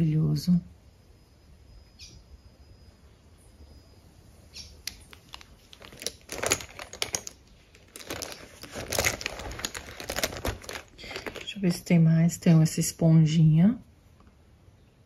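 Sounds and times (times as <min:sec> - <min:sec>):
cosmetic bag rustling: 0:05.1 - 0:11.9.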